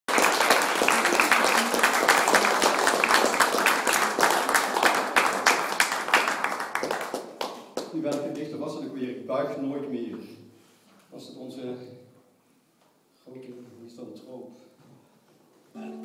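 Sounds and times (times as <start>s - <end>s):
audience applauding: 0.1s - 8.2s.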